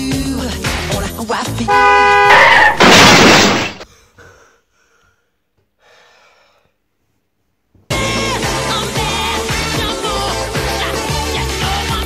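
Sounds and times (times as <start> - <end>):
loud crash: 1.8 - 3.8.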